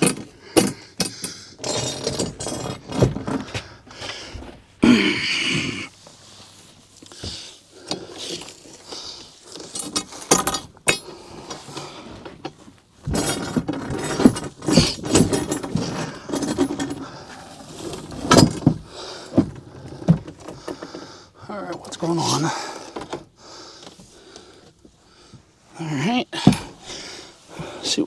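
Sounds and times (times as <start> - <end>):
metal cabinet clunking and scraping: 12.3 - 20.7.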